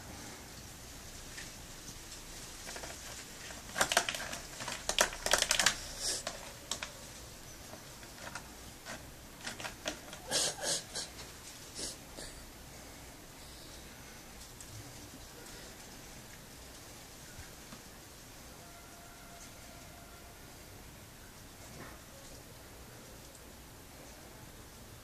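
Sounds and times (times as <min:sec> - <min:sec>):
cats crunching food: 0:01.3 - 0:11.8.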